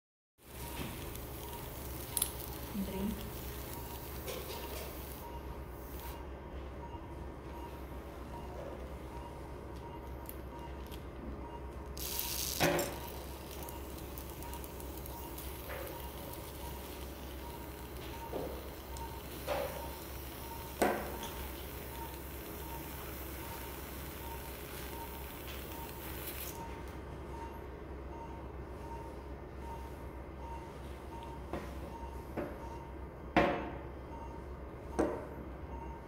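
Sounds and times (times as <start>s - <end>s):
equipment hum and hiss: 0.4s - 36.0s.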